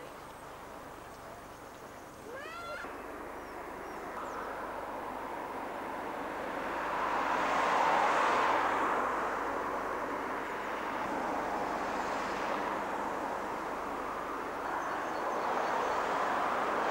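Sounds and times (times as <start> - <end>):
cars passing on road: 0.0 - 16.9.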